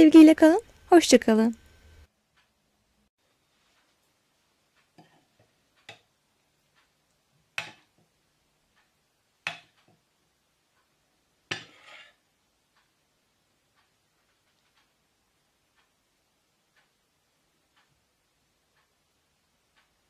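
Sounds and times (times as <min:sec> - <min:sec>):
spoon scraping bowl: 0:11.6 - 0:12.2.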